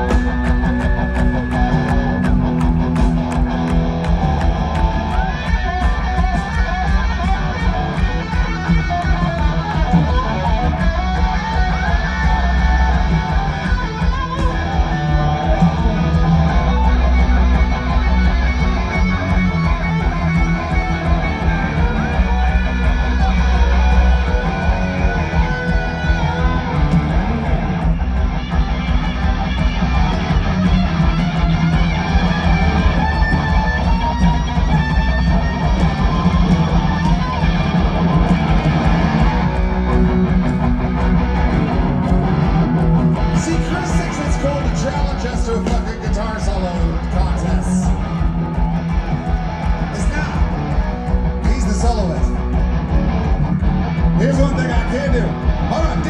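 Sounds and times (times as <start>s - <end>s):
bent electric guitar notes: 0.0s - 56.0s
rock band playing live: 0.0s - 56.0s.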